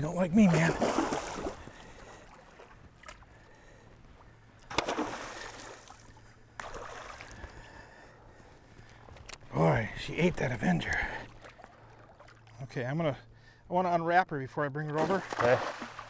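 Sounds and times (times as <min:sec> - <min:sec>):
fish splashing in water: 0:00.5 - 0:02.7, 0:04.7 - 0:07.4.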